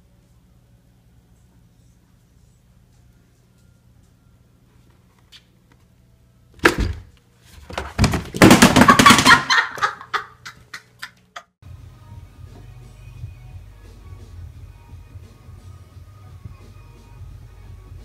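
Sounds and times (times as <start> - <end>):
plastic laundry basket banging: 6.6 - 9.9.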